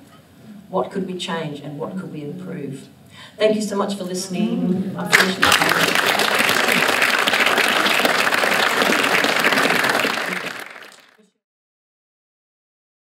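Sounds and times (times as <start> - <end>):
audience applauding: 5.1 - 11.2.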